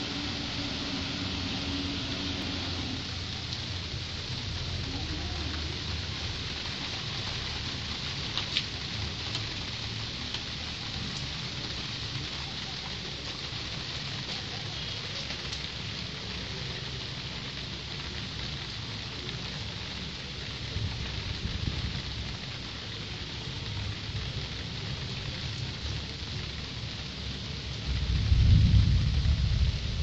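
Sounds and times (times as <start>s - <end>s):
low rumble: 0.0s - 4.9s, 27.8s - 30.0s
rain on ground and foliage: 0.0s - 30.0s.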